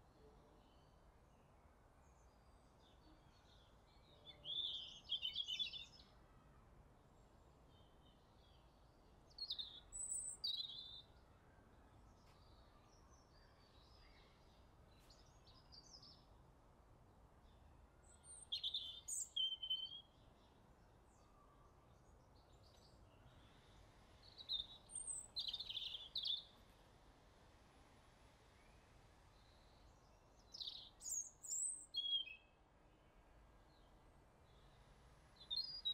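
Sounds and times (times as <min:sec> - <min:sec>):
faint background hiss: 0:00.0 - 0:35.9
small birds chirping: 0:18.0 - 0:20.1, 0:24.2 - 0:26.6, 0:29.4 - 0:32.5.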